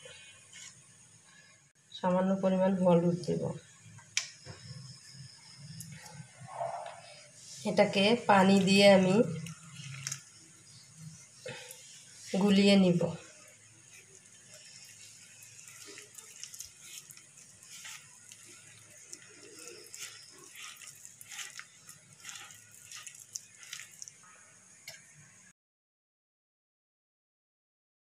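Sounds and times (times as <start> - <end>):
hand squishing wet batter: 8.4 - 10.4, 11.0 - 24.3.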